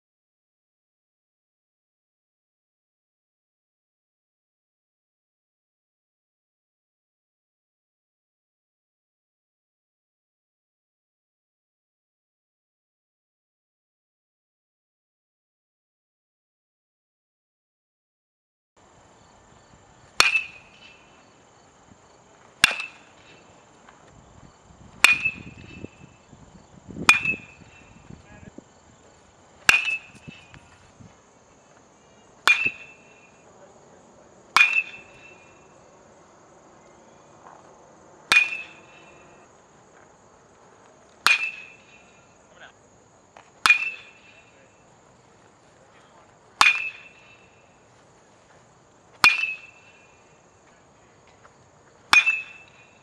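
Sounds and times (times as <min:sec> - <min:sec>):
metal bat hitting ball: 0:20.2 - 0:21.3, 0:22.6 - 0:23.5, 0:25.0 - 0:26.1, 0:27.0 - 0:28.0, 0:29.6 - 0:30.8, 0:32.4 - 0:33.3, 0:34.6 - 0:35.6, 0:38.3 - 0:39.4, 0:41.2 - 0:42.2, 0:43.6 - 0:44.6, 0:46.6 - 0:47.5, 0:49.2 - 0:50.0, 0:52.1 - 0:52.8.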